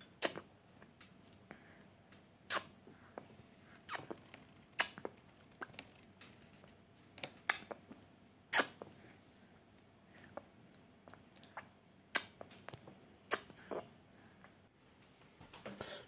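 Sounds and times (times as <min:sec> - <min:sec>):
baby's mouth smacking: 0:03.9 - 0:05.9, 0:11.0 - 0:13.8.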